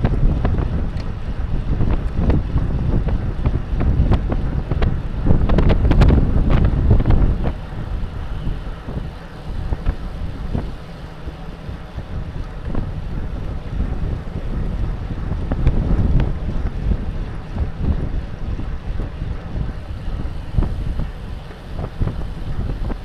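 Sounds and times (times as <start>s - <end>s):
bike clicks and knocks: 0.0s - 1.2s
wind buffeting microphone: 0.0s - 23.0s.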